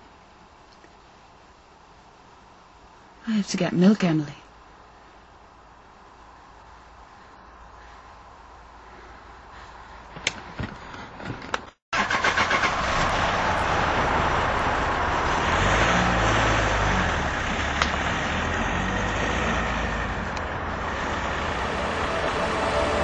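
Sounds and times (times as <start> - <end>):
car engine running: 12.2 - 23.0.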